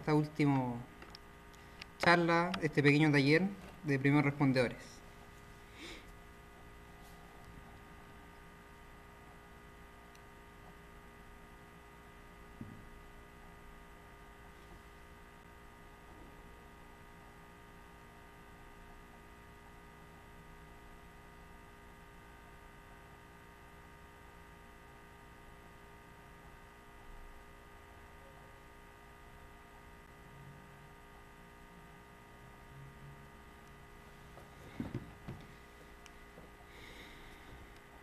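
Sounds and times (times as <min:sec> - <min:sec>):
faint electrical hum: 0:00.0 - 0:38.0.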